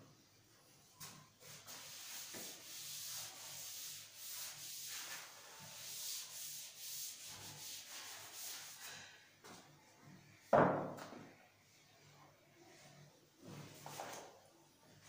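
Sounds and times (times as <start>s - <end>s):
duster scrubbing chalkboard: 1.0s - 9.0s.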